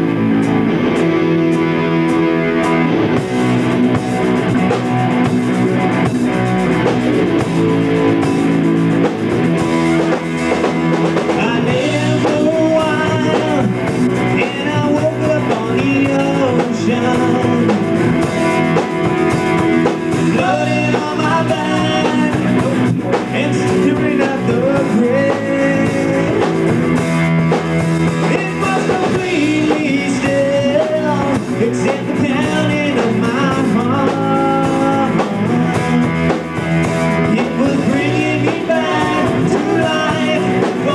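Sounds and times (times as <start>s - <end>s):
rock band playing: 0.0s - 40.9s
man singing lead: 10.1s - 40.9s.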